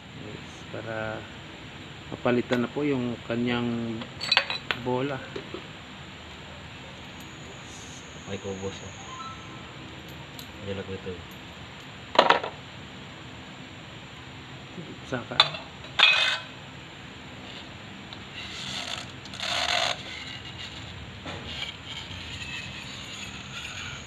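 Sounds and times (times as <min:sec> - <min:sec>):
metal parts clinking: 0:04.2 - 0:04.7
short scraping noises: 0:18.3 - 0:24.0.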